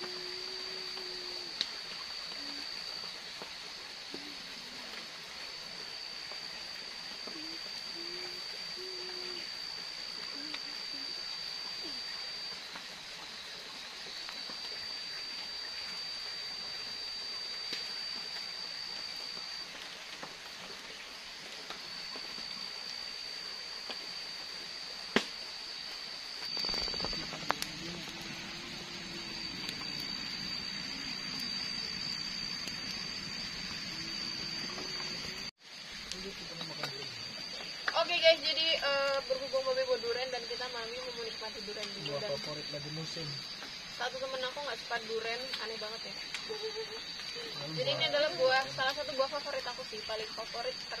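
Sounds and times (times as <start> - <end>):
campfire crackling: 0.0 - 51.0
low wavering hum: 4.2 - 35.5
steady high-pitched drone: 5.7 - 21.0, 21.7 - 51.0.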